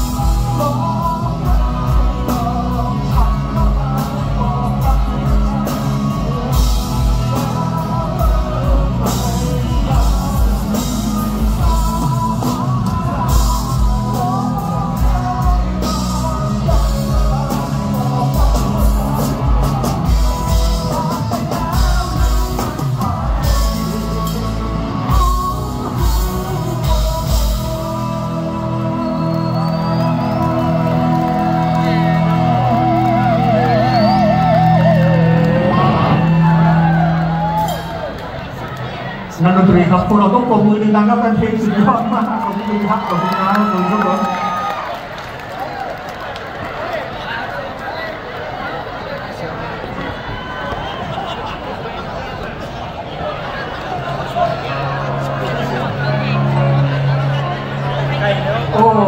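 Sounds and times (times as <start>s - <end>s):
man singing: 0.0s - 37.6s
drum kit beat: 0.0s - 38.1s
bass guitar: 0.0s - 44.8s, 54.0s - 59.0s
electric guitars: 0.0s - 46.7s, 49.6s - 59.0s.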